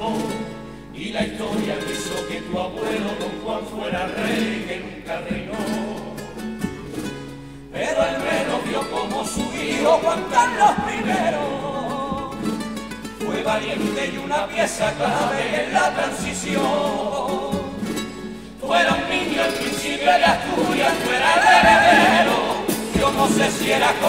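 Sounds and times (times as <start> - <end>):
male chorus singing: 0.0 - 6.7, 7.7 - 12.6, 13.2 - 24.0
guitars: 0.0 - 24.0.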